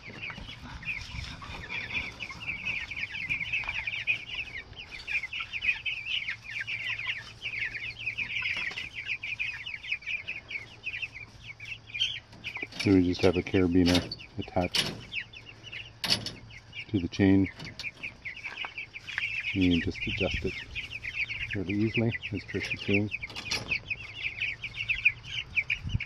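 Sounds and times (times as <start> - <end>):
chicks peeping: 0.0 - 26.0.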